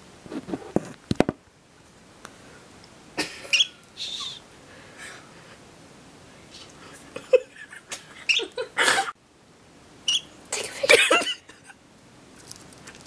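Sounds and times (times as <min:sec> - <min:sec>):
birds chirping and squeaking: 0:03.5 - 0:04.4, 0:08.2 - 0:08.6, 0:10.1 - 0:10.4
hissy bursts: 0:03.5 - 0:04.6.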